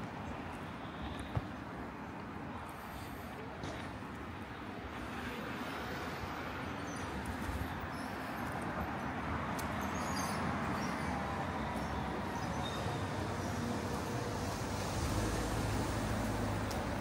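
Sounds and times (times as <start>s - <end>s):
traffic noise: 0.0s - 17.0s.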